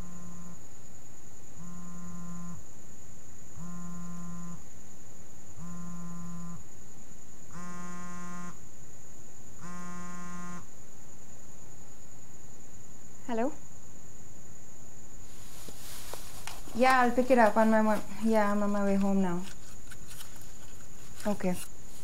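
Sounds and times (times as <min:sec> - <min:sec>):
phone vibrating: 0:00.0 - 0:00.6, 0:01.6 - 0:02.6, 0:03.6 - 0:04.6, 0:05.6 - 0:06.6, 0:07.5 - 0:08.6, 0:09.6 - 0:10.7.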